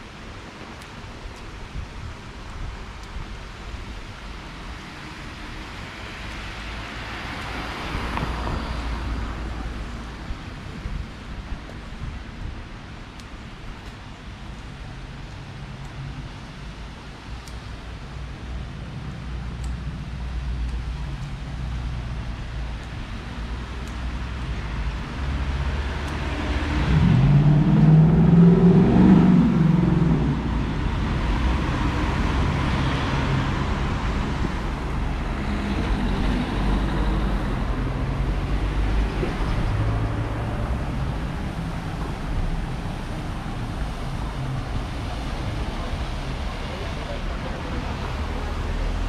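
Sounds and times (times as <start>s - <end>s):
cars passing: 4.7s - 11.3s, 18.6s - 49.0s
car driving by: 25.5s - 44.0s.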